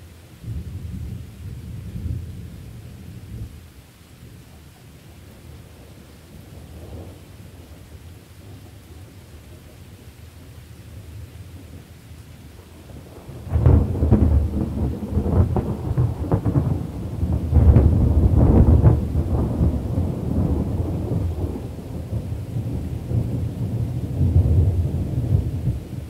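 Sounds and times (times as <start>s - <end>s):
rain: 0.0s - 26.0s
low rumble of thunder: 0.2s - 26.0s
loud thunderclap: 13.3s - 26.0s.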